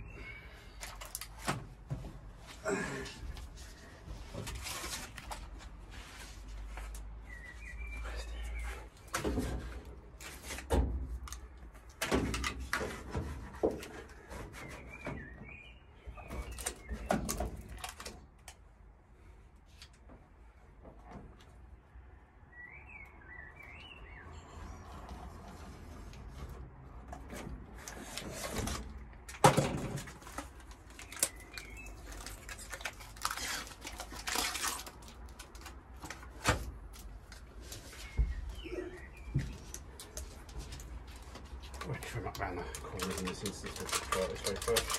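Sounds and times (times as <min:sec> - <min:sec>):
foil crinkling: 0:30.0 - 0:37.4, 0:41.7 - 0:44.9
birds chirping faintly: 0:37.5 - 0:44.9.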